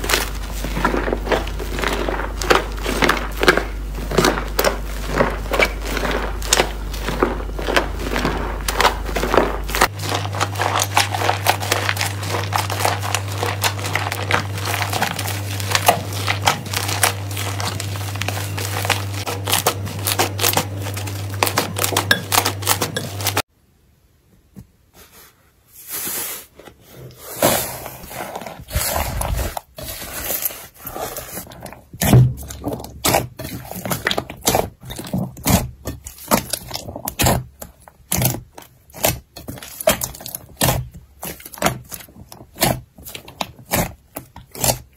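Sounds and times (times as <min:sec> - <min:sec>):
slime crackling and tearing: 0:00.0 - 0:23.4, 0:27.4 - 0:44.9
low steady hum: 0:00.0 - 0:25.5.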